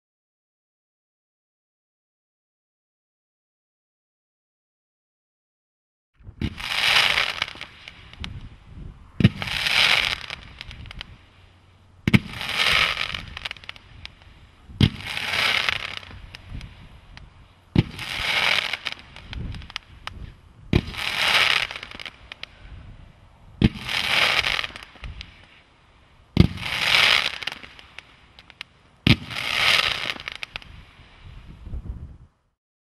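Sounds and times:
firework thumps: 6.2s - 8.5s, 9.2s - 11.2s, 12.0s - 22.5s, 23.6s - 25.6s, 26.4s - 30.8s
firework crackling fizz: 6.3s - 31.7s.

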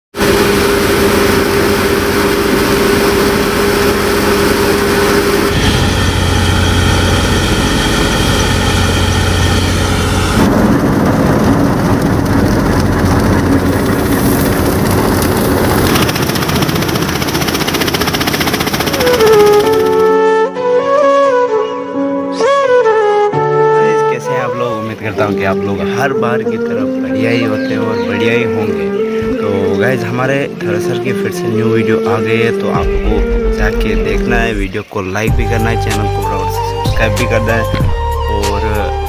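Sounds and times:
grain thresher running: 0.2s - 20.2s.

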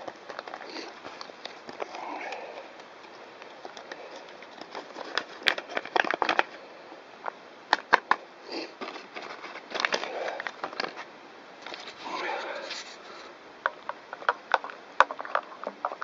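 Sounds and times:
soup packet crinkling: 0.0s - 6.6s.

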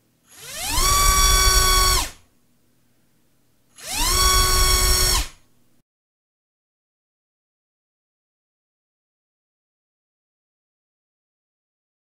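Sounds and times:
electric motor high whine: 0.3s - 2.2s, 3.8s - 5.3s.

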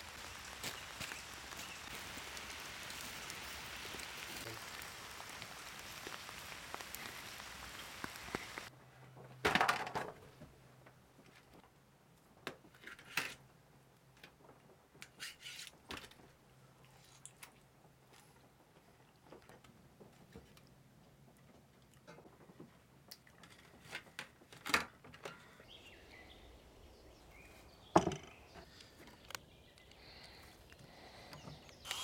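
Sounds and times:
campfire crackling: 0.0s - 8.7s, 25.6s - 32.0s
foil crinkling: 0.0s - 8.7s
rain hissing: 0.0s - 8.7s, 25.6s - 32.0s.

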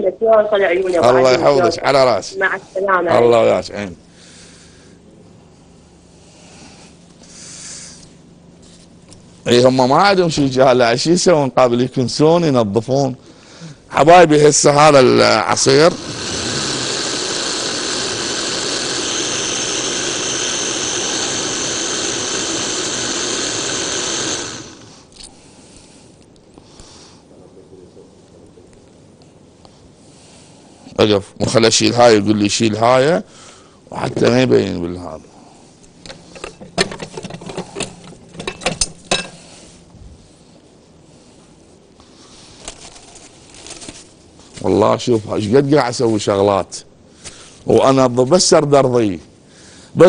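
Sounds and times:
blender running: 15.3s - 25.1s.

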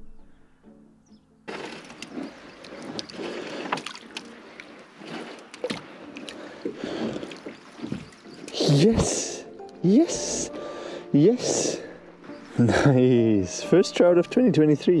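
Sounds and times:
water sloshing and dripping: 1.5s - 9.8s.

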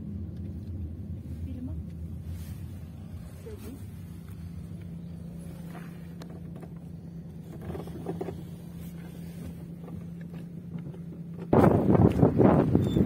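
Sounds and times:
vehicle engine humming: 0.0s - 13.0s
wind on microphone: 11.5s - 13.0s.

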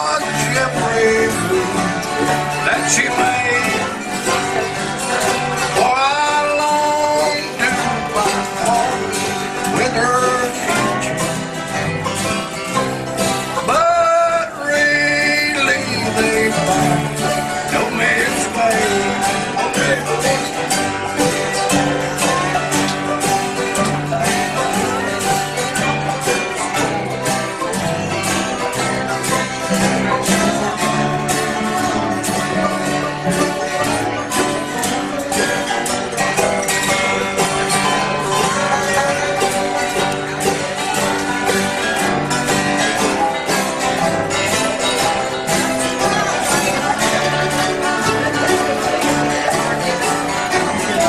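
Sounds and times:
man singing lead: 0.0s - 11.5s, 13.5s - 21.6s
bluegrass band playing: 0.0s - 51.0s.

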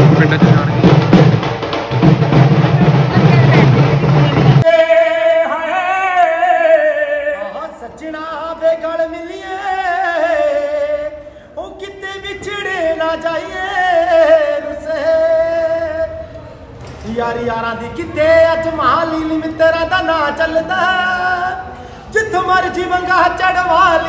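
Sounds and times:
man singing unaccompanied: 4.6s - 16.2s, 17.0s - 24.0s.

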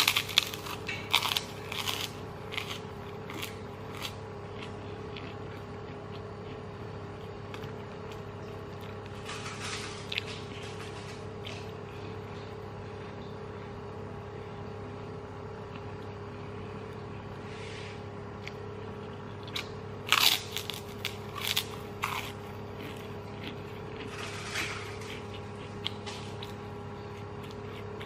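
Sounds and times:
crisp crunches: 0.0s - 6.6s, 19.5s - 26.6s
chewing: 0.0s - 13.3s, 18.4s - 28.0s
steady low hum: 0.0s - 28.0s.

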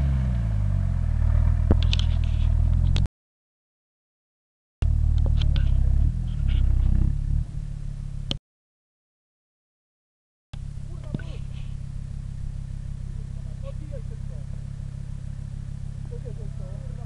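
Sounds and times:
car engine running: 0.0s - 3.1s, 4.8s - 8.4s, 10.6s - 17.0s.

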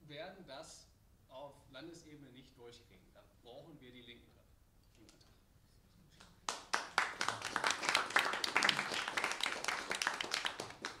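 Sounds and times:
audience applauding: 6.5s - 11.0s.

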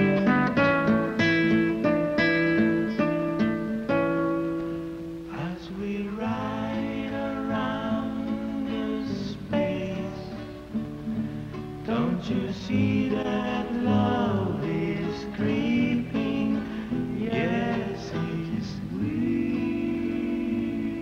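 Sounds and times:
guitar music: 0.0s - 21.0s
person singing: 5.2s - 21.0s.

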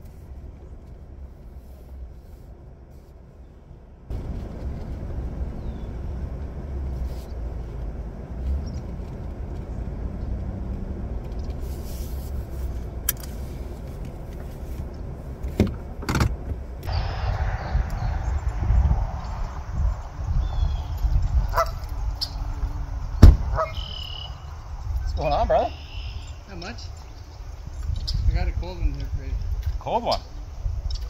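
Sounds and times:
truck engine and tyres rumbling: 0.0s - 31.0s
sharp knocks: 23.2s - 23.6s.

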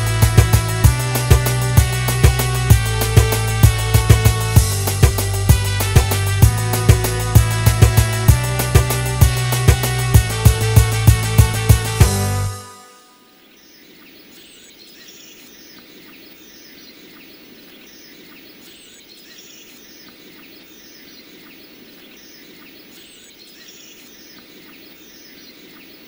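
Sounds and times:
music: 0.0s - 13.3s
small birds chirping: 12.9s - 26.0s.

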